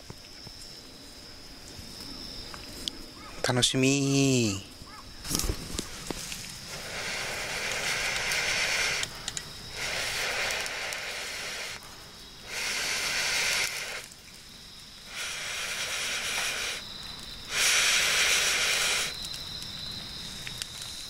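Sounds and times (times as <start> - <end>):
breath blown through pipe: 6.7 - 11.8, 12.4 - 14.1, 15.1 - 16.9, 17.5 - 19.2.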